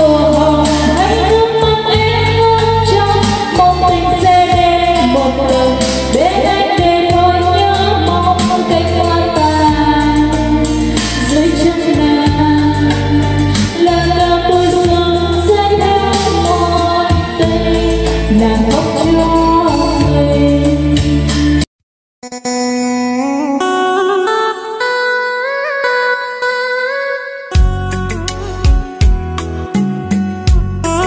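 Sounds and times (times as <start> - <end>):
woman singing karaoke: 0.0 - 21.6
backing track with heavy bass: 0.0 - 25.0, 27.0 - 31.0.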